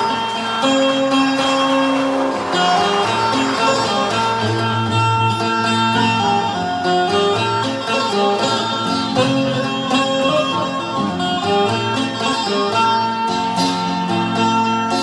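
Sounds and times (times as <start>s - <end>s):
amplified plucked zither melody: 0.0s - 15.0s.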